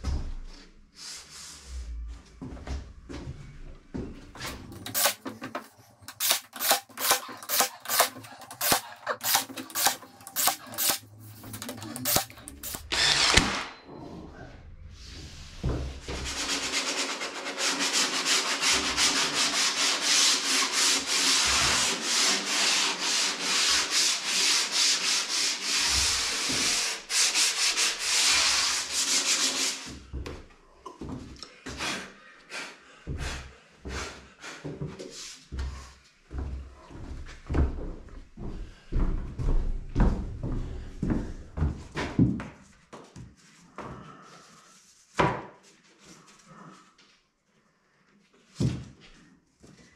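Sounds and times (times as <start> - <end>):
sandpaper rubbing on wood panel: 4.8 - 5.2, 6.1 - 12.9, 16.1 - 30.0.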